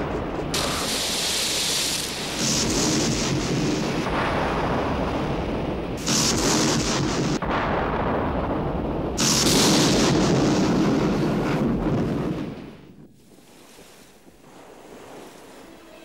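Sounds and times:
booming crashes: 2.3 - 12.9.

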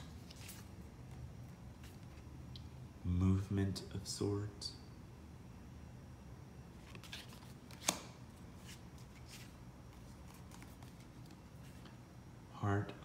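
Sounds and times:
cards rustling: 0.0 - 2.2, 6.8 - 12.0.

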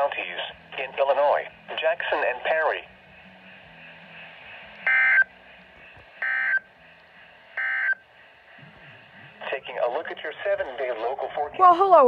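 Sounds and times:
digital data tone bursts: 4.8 - 5.3.

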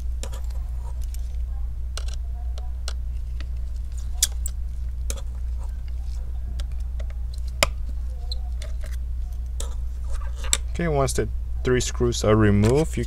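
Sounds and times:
screwdriver clicking and scratching: 0.0 - 1.4, 2.0 - 10.6
steady low hum: 0.0 - 13.0.

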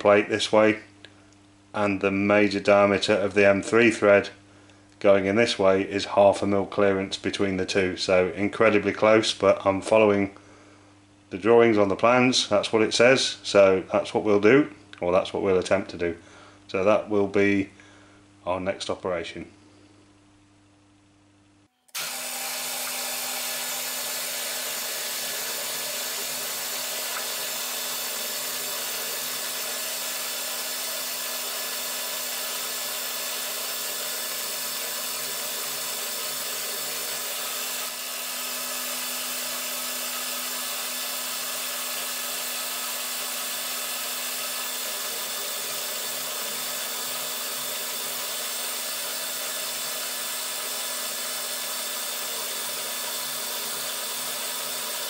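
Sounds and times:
milling machine drone: 21.9 - 55.0.

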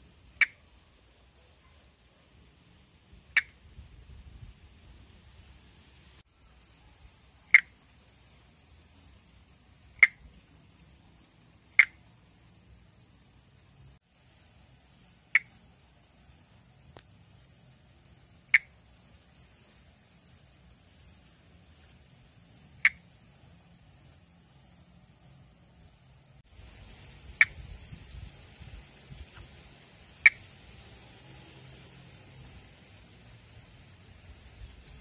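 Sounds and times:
insect trill: 0.0 - 35.0
frog click-like calls: 0.2 - 2.4, 3.2 - 3.7, 7.2 - 10.7, 11.5 - 13.3, 15.0 - 26.0, 26.9 - 28.1, 29.3 - 30.5.

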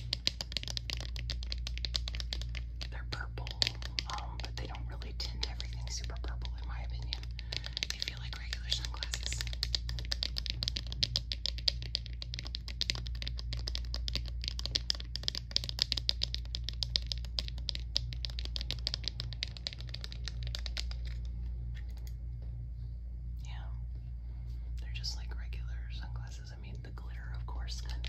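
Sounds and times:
fingernails tapping on plastic: 0.0 - 21.2.

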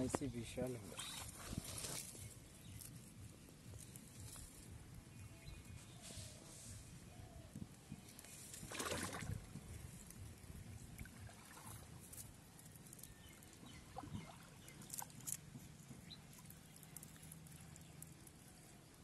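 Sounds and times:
water sloshing and splashing: 0.0 - 2.6, 8.1 - 18.2.

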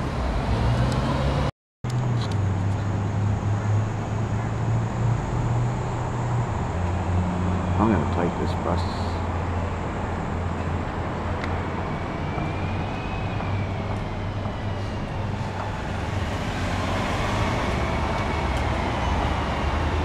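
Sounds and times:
bus engine rumble: 0.0 - 20.0.

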